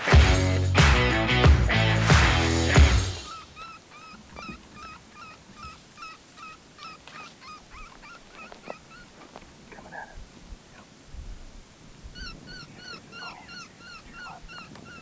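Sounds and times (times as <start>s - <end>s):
theme music: 0.0s - 3.3s
electronic animal distress calls: 3.2s - 9.1s.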